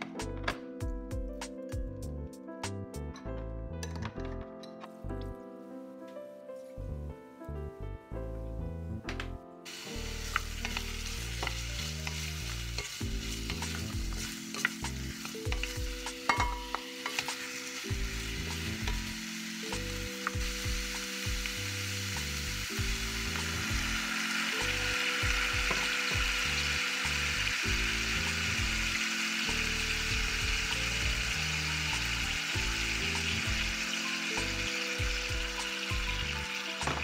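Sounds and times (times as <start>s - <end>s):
food sizzling in a pot: 9.7s - 37.0s.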